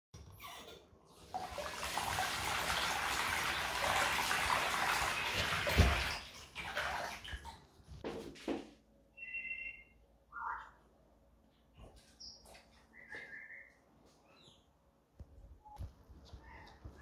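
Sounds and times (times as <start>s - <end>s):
water running into sink: 1.1s - 7.7s.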